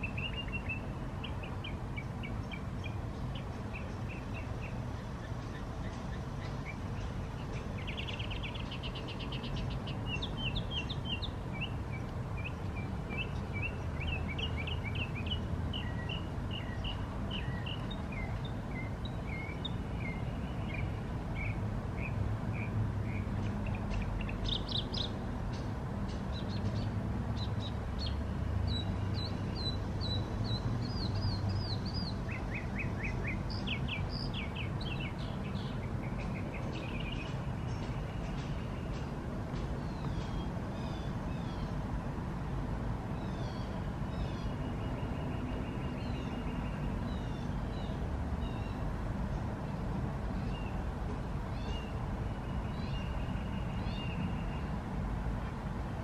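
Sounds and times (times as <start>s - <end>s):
small birds chirping: 0.0s - 41.8s.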